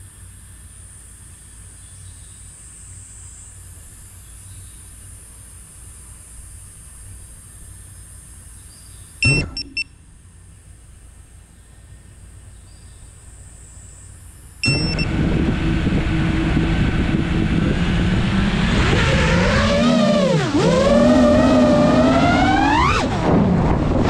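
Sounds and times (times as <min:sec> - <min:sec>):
drone motors humming: 0:09.2 - 0:09.8, 0:14.6 - 0:24.0
short beep: 0:09.2 - 0:10.0, 0:14.6 - 0:15.1.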